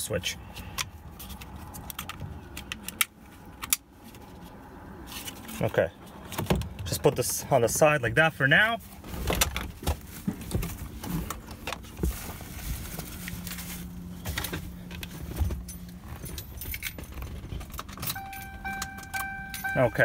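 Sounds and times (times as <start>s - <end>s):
steady electronic tone: 18.2s - 20.0s.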